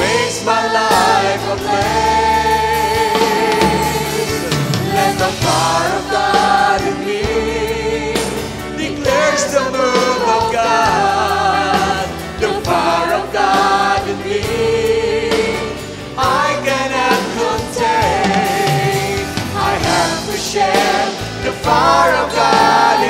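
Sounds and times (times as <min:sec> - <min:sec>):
percussion: 0:00.0 - 0:23.0
women singing: 0:00.0 - 0:23.0.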